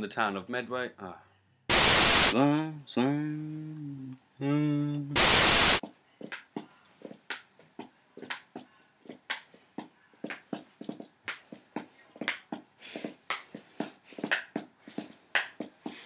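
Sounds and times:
loud hissing static: 0:01.7 - 0:02.4, 0:05.2 - 0:05.8.

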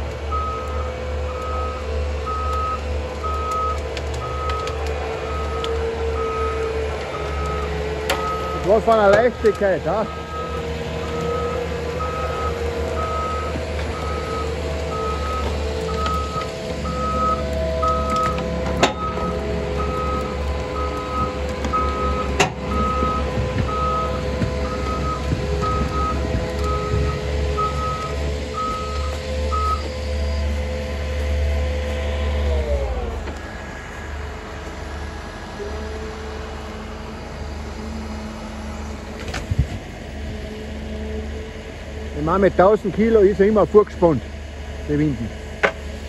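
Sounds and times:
diesel engine running under load: 0:00.0 - 0:46.0
reversing alarm beeping: 0:00.3 - 0:31.1.

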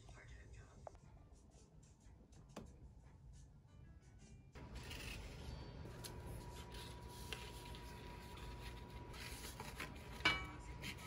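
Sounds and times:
paper rustling and scraping: 0:04.6 - 0:11.0.

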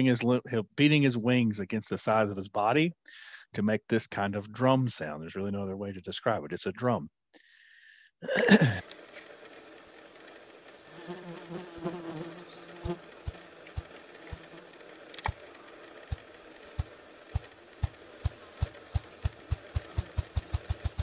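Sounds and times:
grouse wing beat thumps: 0:12.9 - 0:14.5, 0:16.1 - 0:21.0.

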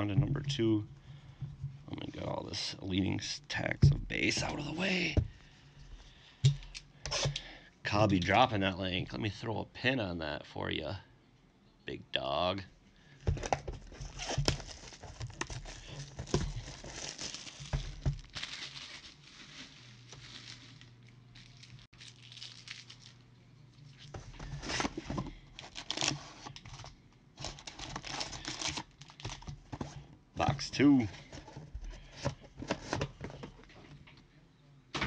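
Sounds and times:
packaging tearing and crinkling: 0:14.0 - 0:23.2, 0:23.9 - 0:26.8, 0:27.4 - 0:29.5.

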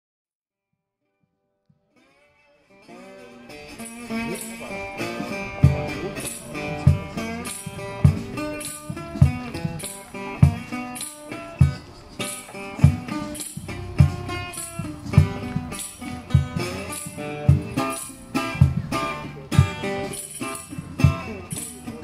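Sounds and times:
resonator guitar picked blues: 0:01.9 - 0:22.0
jingling shimmer: 0:03.7 - 0:09.1, 0:10.7 - 0:22.0
low percussive thump: 0:06.8 - 0:10.7, 0:12.8 - 0:18.0.

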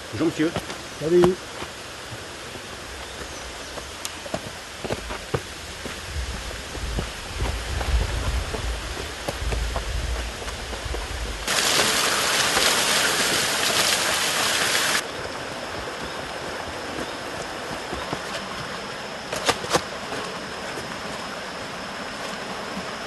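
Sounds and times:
running water rushing: 0:00.0 - 0:23.0
low rumble on microphone: 0:05.4 - 0:11.5.

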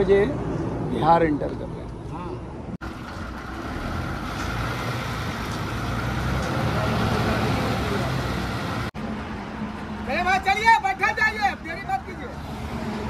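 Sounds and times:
vehicle engine rumble: 0:00.0 - 0:10.2
road noise: 0:00.0 - 0:13.0.

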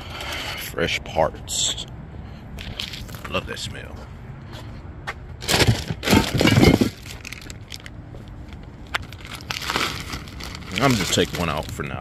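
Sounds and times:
plastic bag crinkling: 0:09.0 - 0:12.0.

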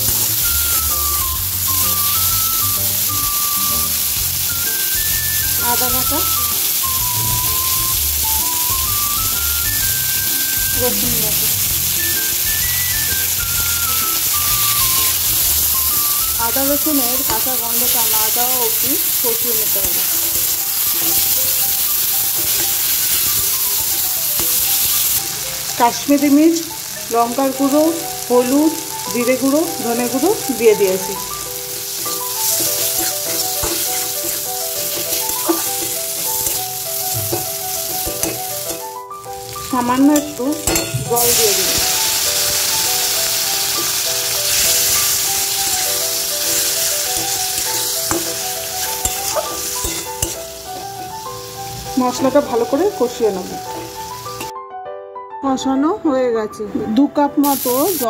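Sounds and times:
food sizzling in hot oil: 0:00.0 - 0:54.5, 0:57.4 - 0:58.0
soft background music: 0:00.0 - 0:58.0
metal spatula scraping pan: 0:19.9 - 0:25.2, 0:31.9 - 0:38.9, 0:40.0 - 0:51.0.

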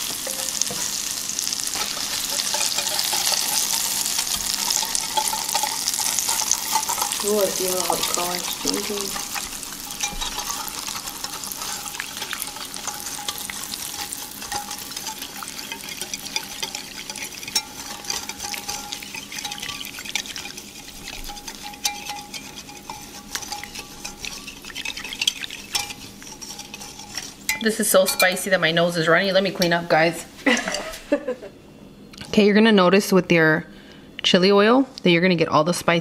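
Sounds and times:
hot oil sizzling: 0:00.0 - 0:29.4
whisk clicking against glass: 0:09.9 - 0:27.7.

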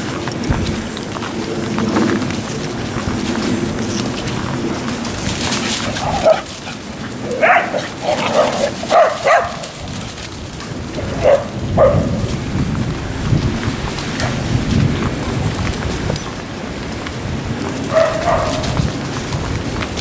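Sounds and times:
dogs barking: 0:05.3 - 0:10.2, 0:10.8 - 0:12.4, 0:17.8 - 0:19.0.

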